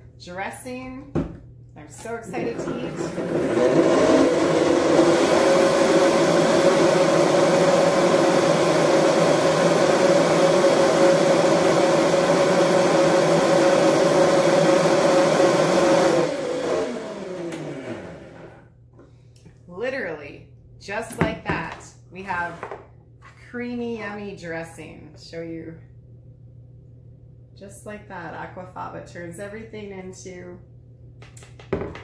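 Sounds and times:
blender whining: 2.0s - 18.7s.

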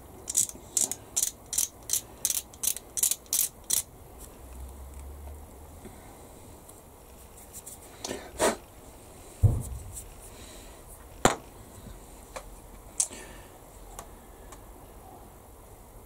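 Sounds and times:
small parts clicking and tapping: 0.2s - 3.9s
dull thump: 9.4s - 10.0s.

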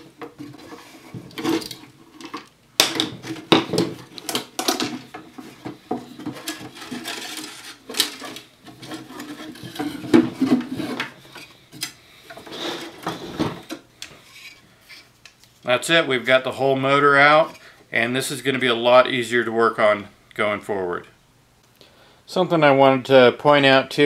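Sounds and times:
plastic and metal parts clattering: 0.0s - 14.6s.

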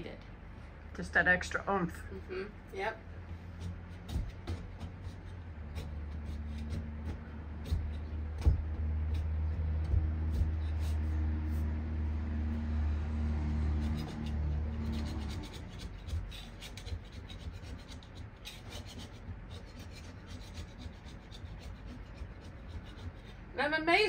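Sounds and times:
low steady hum: 0.0s - 24.0s
scraper scraping wallpaper: 3.4s - 12.1s, 13.4s - 23.4s.

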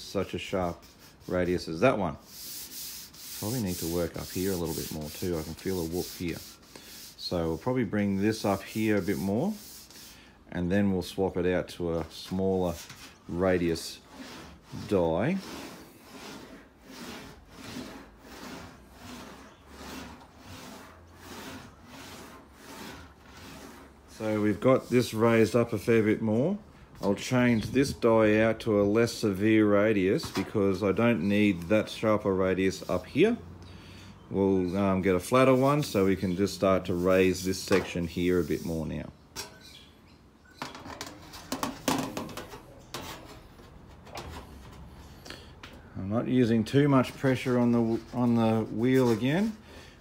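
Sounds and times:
metal sheet knocks and rubbing: 40.6s - 44.9s.

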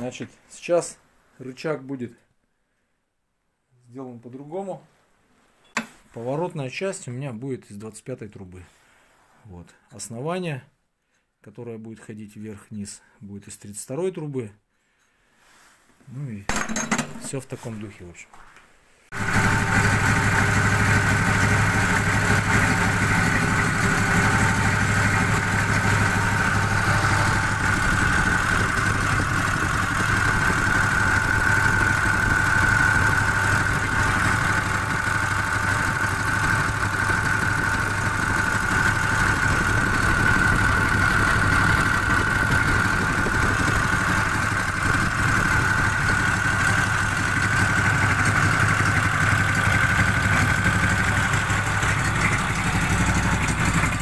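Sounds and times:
snowmobile engine idling: 19.2s - 54.0s.

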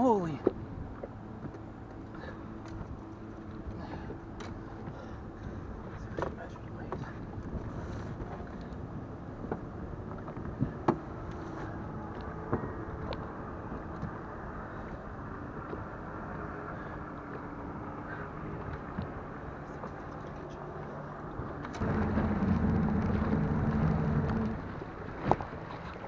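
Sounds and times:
small boat motor humming: 0.0s - 26.0s
wind: 0.0s - 26.0s
water rushing: 8.6s - 26.0s.

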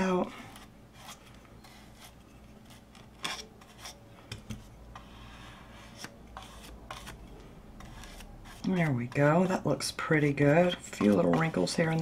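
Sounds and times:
paintbrush scratchy rubbing: 4.7s - 9.6s.

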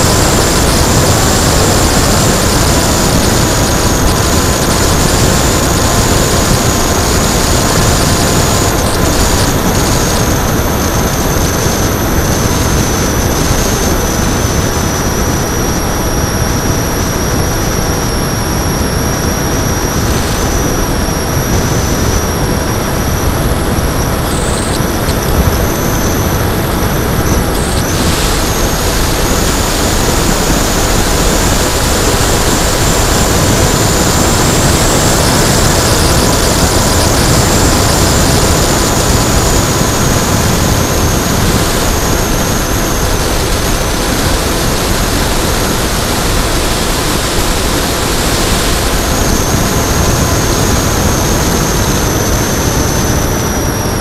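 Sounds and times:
electric motor whine: 0.0s - 54.0s
wind rush: 0.0s - 54.0s.

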